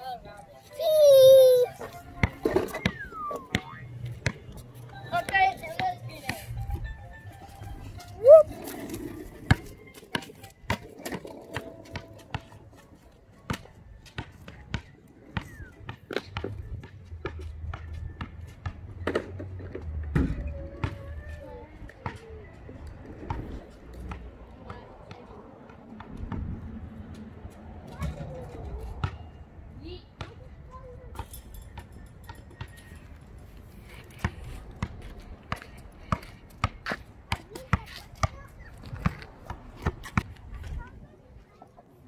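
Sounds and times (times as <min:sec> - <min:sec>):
basketball bouncing on asphalt: 0:02.1 - 0:06.9, 0:09.5 - 0:21.1, 0:29.0 - 0:29.4, 0:34.0 - 0:40.9.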